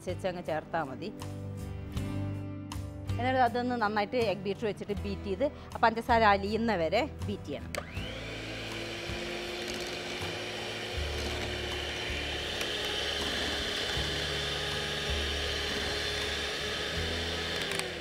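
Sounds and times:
electric hand mixer whining: 7.8 - 18.0.

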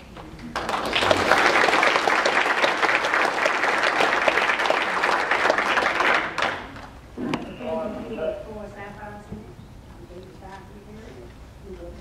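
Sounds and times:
audience applauding: 0.5 - 6.9.

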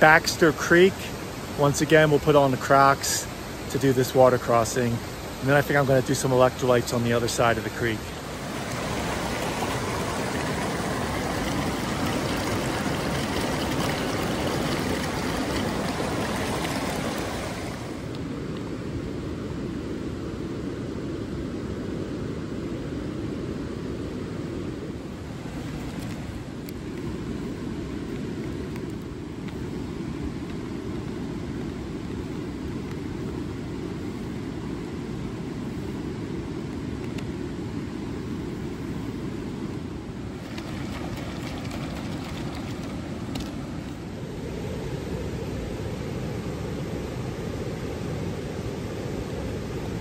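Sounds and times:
creek rushing over rocks: 0.0 - 18.3, 40.3 - 44.2.

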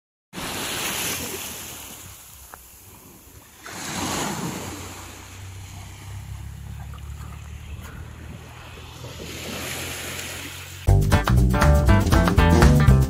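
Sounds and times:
small waves lapping on beach: 0.4 - 10.9
wind rumbling on microphone: 4.3 - 10.8.

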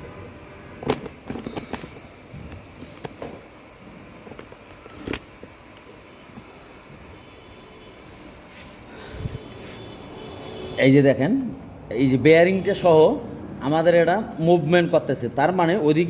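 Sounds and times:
faint steady background noise: 0.0 - 16.0.

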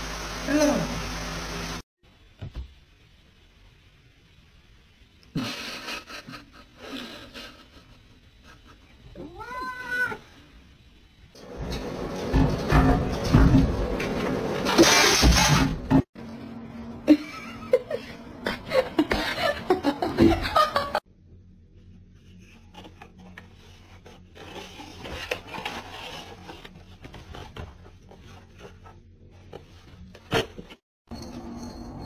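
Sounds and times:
person laughing: 5.4 - 9.0, 17.0 - 21.0.

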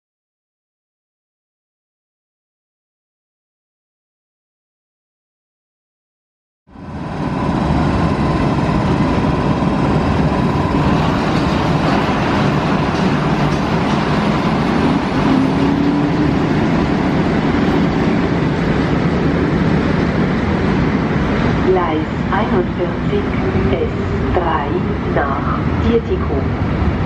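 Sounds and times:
train rumbling past on rails: 6.7 - 27.0.

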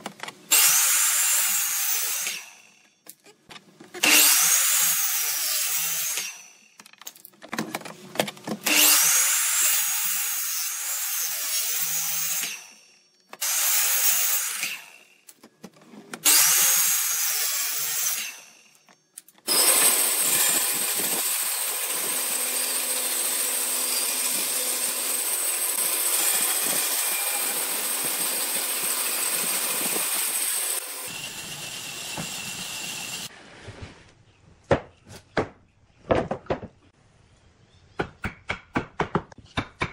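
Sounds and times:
band saw cutting wood: 4.0 - 6.5, 8.6 - 12.8, 13.4 - 15.0, 16.2 - 18.5, 19.5 - 33.3
miter saw cutting wood: 19.5 - 33.3.

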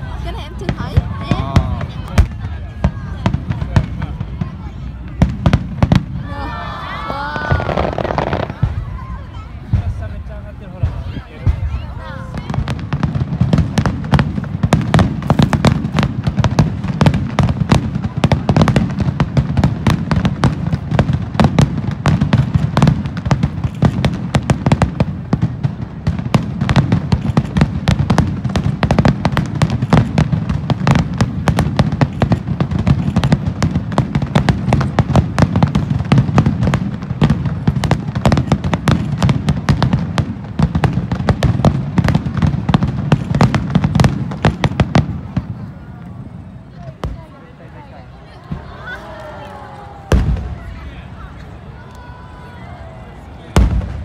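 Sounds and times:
firework shells bursting: 12.9 - 45.4.

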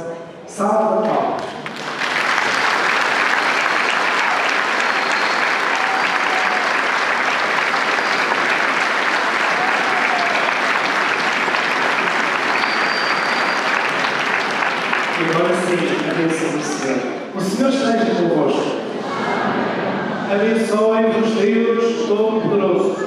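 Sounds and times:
crowd applauding: 1.4 - 17.2.

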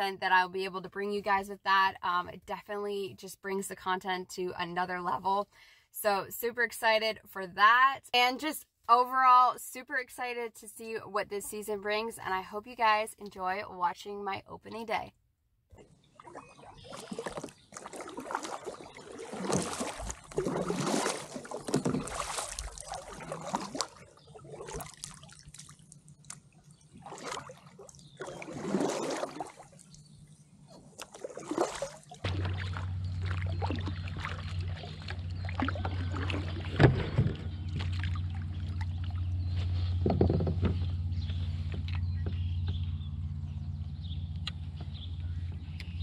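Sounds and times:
paddle strokes splashing water: 15.8 - 42.5
steady low hum: 19.9 - 46.0.

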